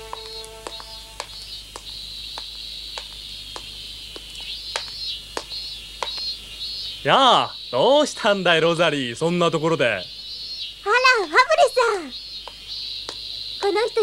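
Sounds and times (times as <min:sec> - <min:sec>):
held music chord: 0:00.0 - 0:01.4
footsteps on a path: 0:00.0 - 0:06.4
insects chirping: 0:00.0 - 0:14.0.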